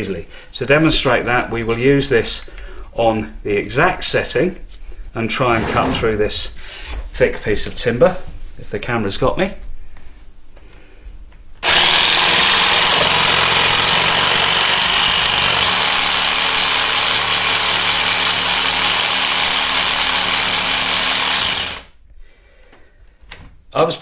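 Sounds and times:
jigsaw cutting into timber: 11.6 - 22.0.

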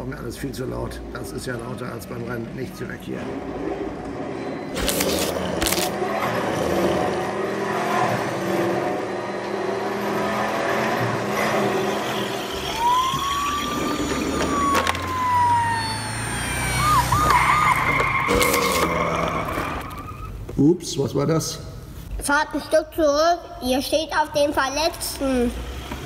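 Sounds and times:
ambulance siren wailing: 11.2 - 20.2
siren fast warbling yelp: 11.7 - 20.3.

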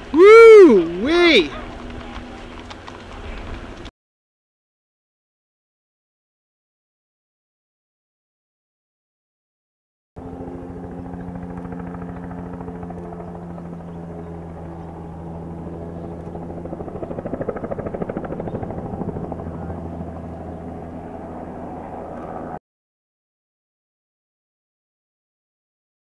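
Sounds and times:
helicopter rotor beating: 0.0 - 3.9, 10.2 - 22.6.

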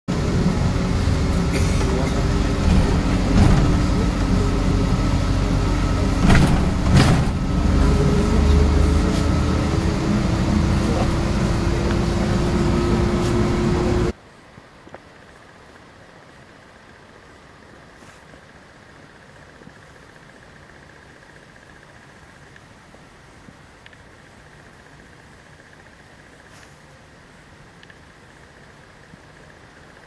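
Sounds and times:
bus engine and road rumble: 0.1 - 14.2
rising whine: 0.1 - 14.2
sharp knocks and rattles: 1.9 - 4.4, 6.1 - 7.9.

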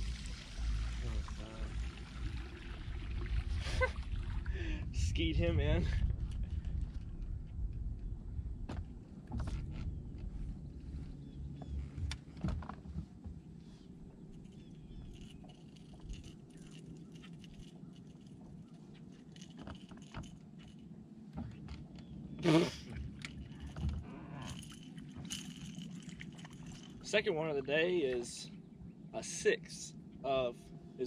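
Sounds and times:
handling fish and lure on deck: 6.0 - 28.9.

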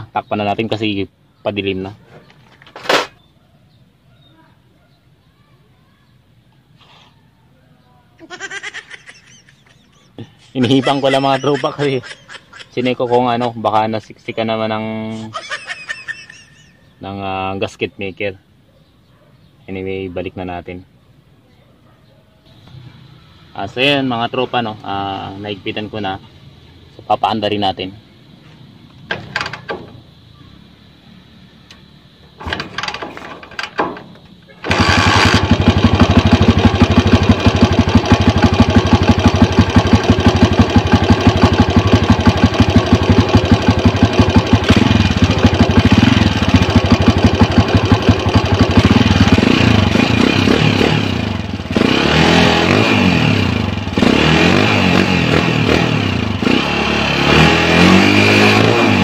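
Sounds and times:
motorcycle engine running: 34.3 - 59.0.

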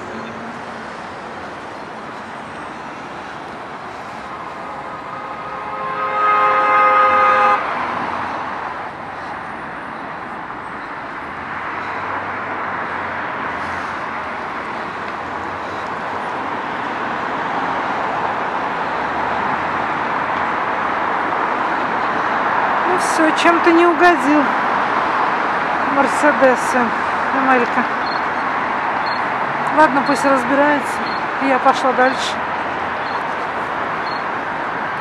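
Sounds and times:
busy road traffic: 0.0 - 35.0
vehicle horn: 4.6 - 7.9.

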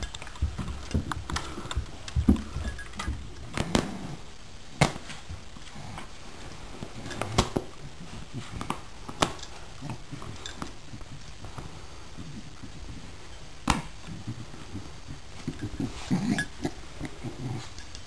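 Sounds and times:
dogs' paws thumping and tapping: 0.0 - 4.0.

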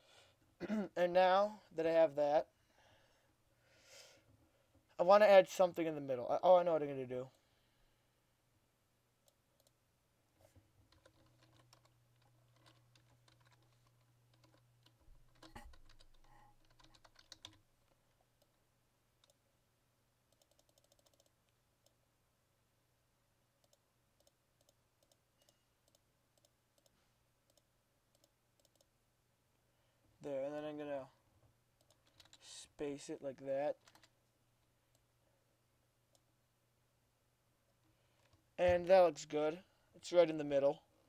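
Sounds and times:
faint keyboard typing: 10.4 - 18.6, 19.2 - 19.4, 20.3 - 22.0, 23.6 - 29.0, 31.8 - 32.5, 33.7 - 35.1, 37.8 - 38.9.

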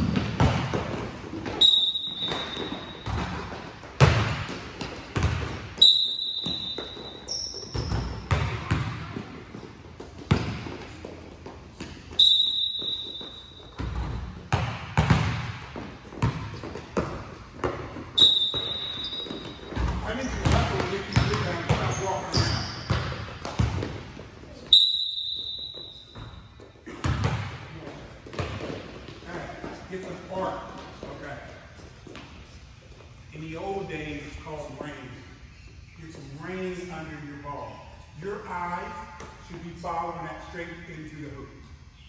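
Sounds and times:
basketballs bouncing on hardwood floor: 0.0 - 31.1
high shoe squeak: 1.4 - 3.4, 5.8 - 8.3, 12.1 - 14.2, 18.2 - 23.2, 24.5 - 26.7.

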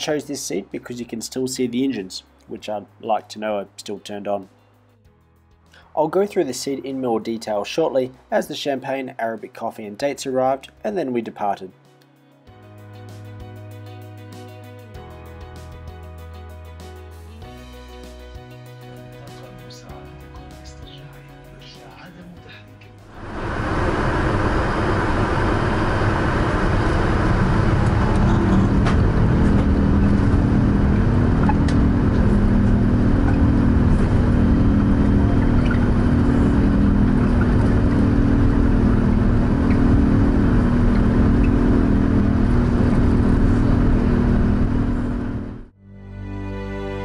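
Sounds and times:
low hum of engine tones: 22.5 - 45.7
jet engines and runway rumble: 23.1 - 45.7.

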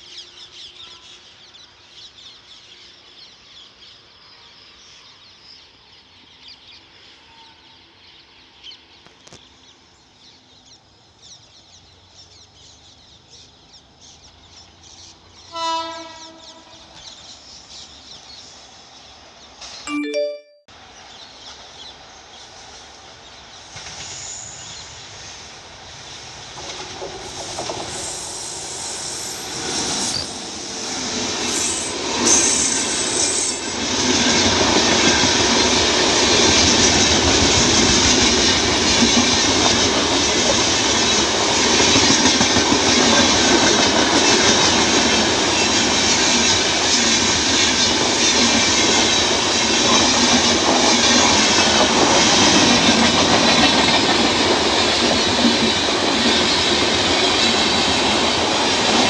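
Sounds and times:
train passing at speed: 0.0 - 59.0
wheels clickety-clack on rail: 19.4 - 19.8, 21.1 - 59.0.

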